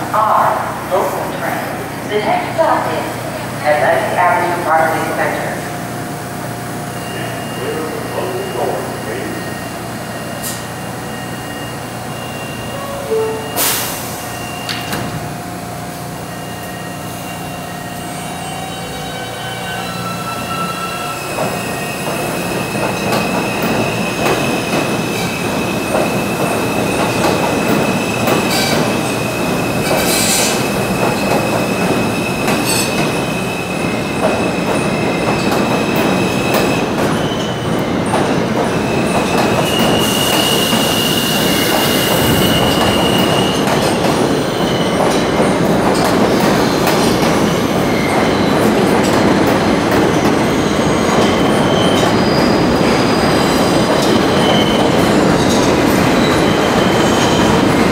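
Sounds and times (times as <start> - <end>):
train wheels rumbling on rail: 0.0 - 57.9
high wheel squeal: 16.3 - 25.4, 29.9 - 30.7, 38.8 - 43.7, 50.4 - 57.8.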